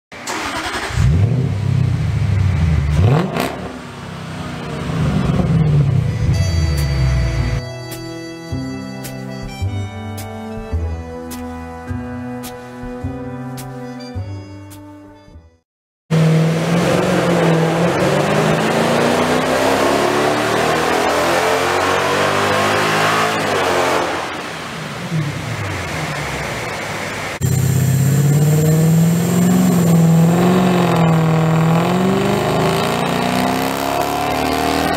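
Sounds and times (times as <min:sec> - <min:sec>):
car engine revving: 0:00.2 - 0:07.0, 0:16.1 - 0:34.9.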